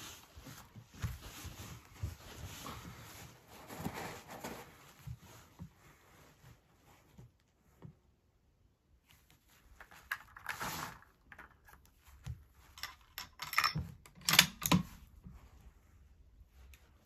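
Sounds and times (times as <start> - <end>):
rifle bolt clicks and clacks: 12.8 - 14.9.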